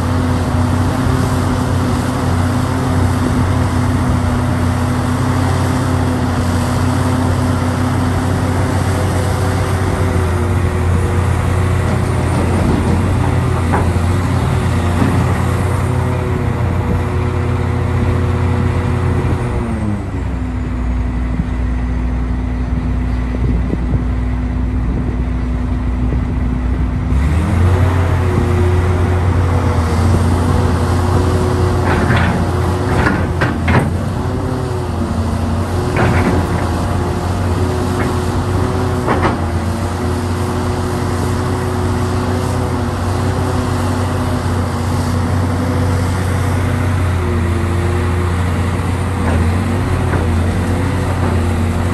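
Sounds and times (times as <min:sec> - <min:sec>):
excavator diesel engine running: 0:00.0 - 0:51.9
excavator bucket clanks: 0:31.7 - 0:34.2, 0:35.8 - 0:37.2.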